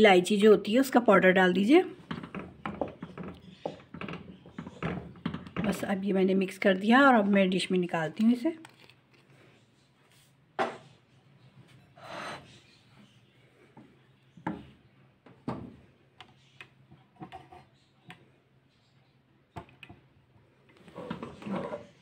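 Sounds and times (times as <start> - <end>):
spatula stirring and scraping: 2.0 - 5.9.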